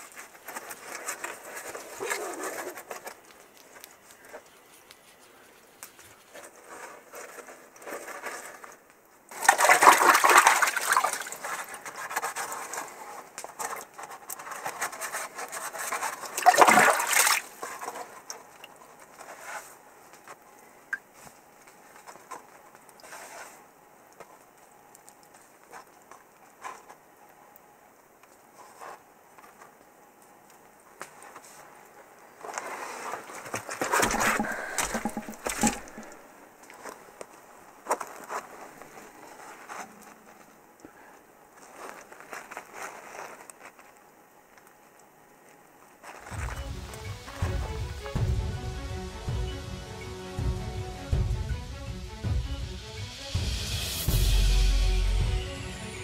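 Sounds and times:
hands splashing in muddy water: 9.3 - 11.6, 16.3 - 17.6, 33.9 - 36.2
quiet stirring in water: 32.6 - 36.3.

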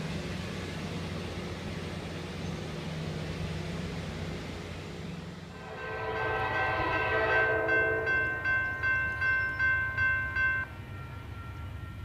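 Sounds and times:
horn-like chord: 5.5 - 9.6
crossing warning bell ringing: 5.6 - 12.0.

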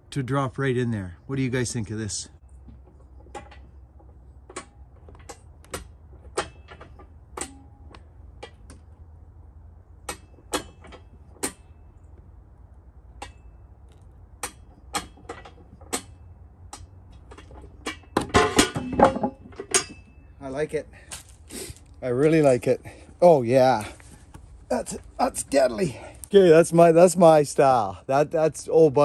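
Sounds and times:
low steady rumble: 0.0 - 29.0.

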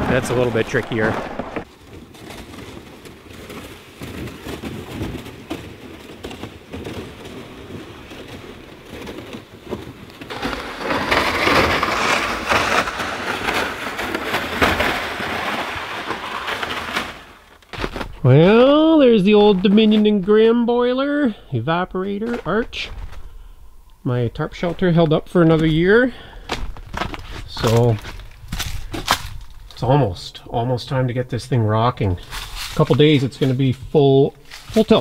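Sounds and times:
boots crunching on frozen snow: 16.4 - 20.6, 24.5 - 29.9, 32.1 - 35.0.

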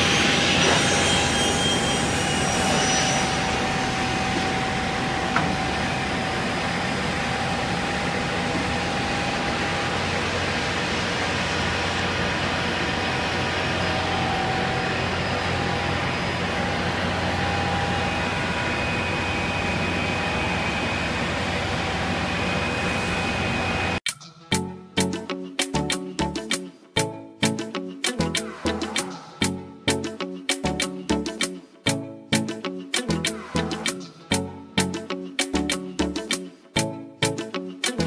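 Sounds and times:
panel saw machine noise: 0.0 - 24.0.

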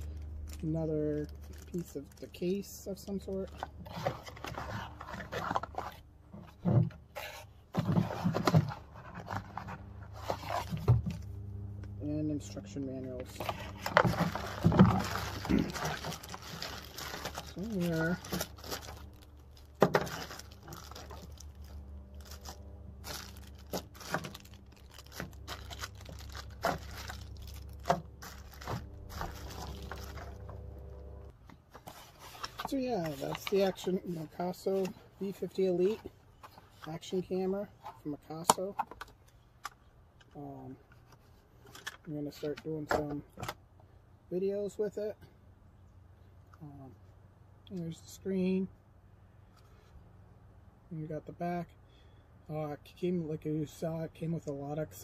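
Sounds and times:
plastic bags crinkling: 0.0 - 6.0, 13.2 - 30.5, 32.1 - 34.9
cardboard and paper rustling: 0.0 - 11.3, 13.1 - 30.6, 31.5 - 39.2
low hum: 9.3 - 31.4.

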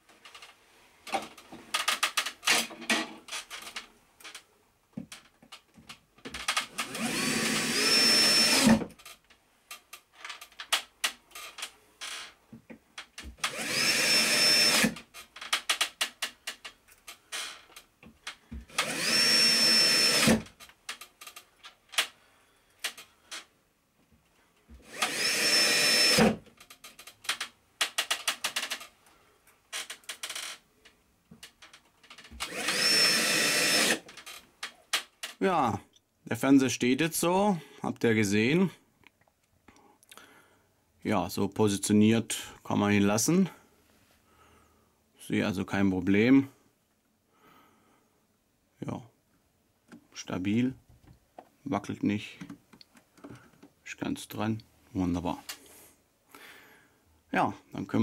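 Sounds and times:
drill driver motor whine: 6.7 - 8.8, 13.4 - 15.0, 18.7 - 20.4, 24.8 - 26.4, 32.4 - 34.0.

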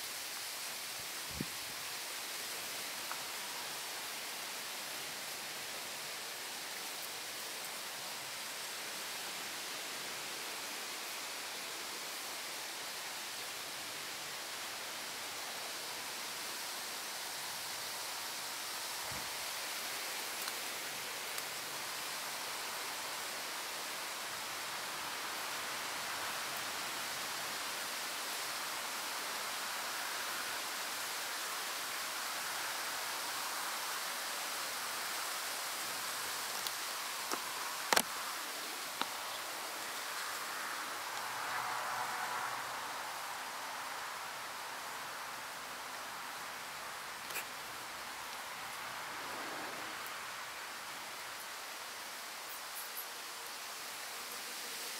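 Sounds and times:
steady background hiss: 0.0 - 54.9.

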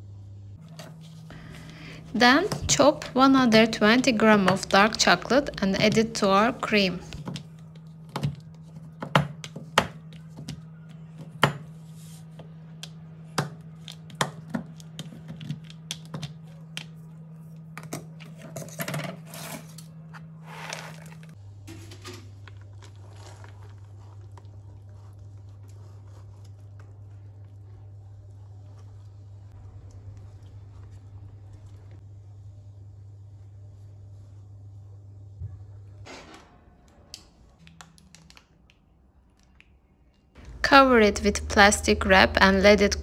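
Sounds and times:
low hum: 0.0 - 9.0, 39.1 - 43.0.

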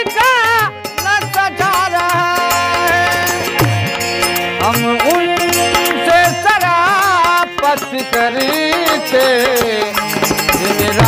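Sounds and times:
harmonium chords: 0.0 - 11.0
man singing: 0.0 - 11.0
hand drum beat: 0.6 - 6.9, 8.8 - 11.0.

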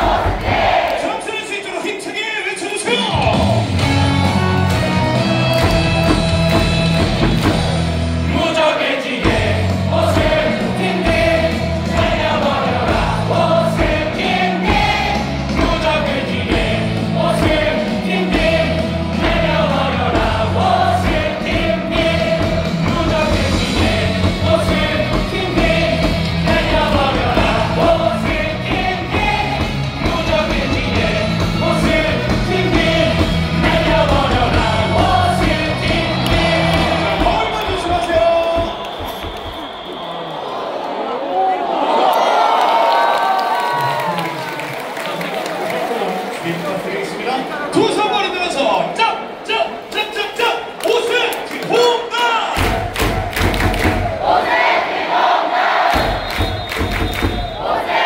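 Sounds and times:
crowd singing in unison: 0.0 - 1.2, 3.3 - 41.1, 52.6 - 58.0
loud music with steady beat: 3.1 - 8.3, 9.2 - 37.9.

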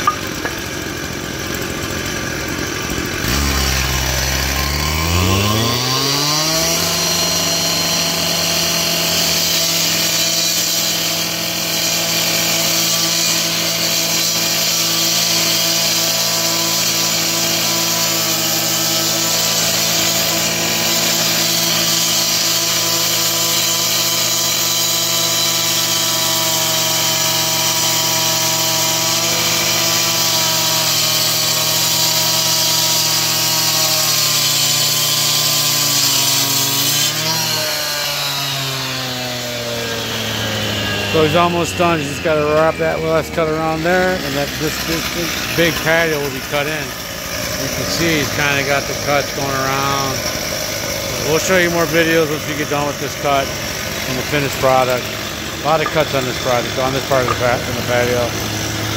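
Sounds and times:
cut-off saw cutting pavers: 0.0 - 58.9.

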